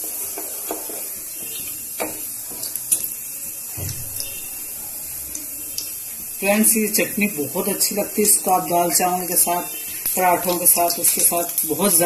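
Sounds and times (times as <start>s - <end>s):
spatula scraping a pan: 0.0s - 3.0s
seeds sizzling in hot oil: 0.0s - 12.0s.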